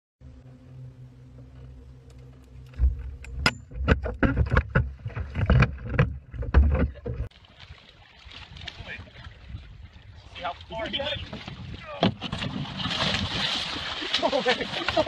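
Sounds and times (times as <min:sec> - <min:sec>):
splashing and knocking on boat: 0:10.5 - 0:15.0
heavy splash in water: 0:12.2 - 0:15.0.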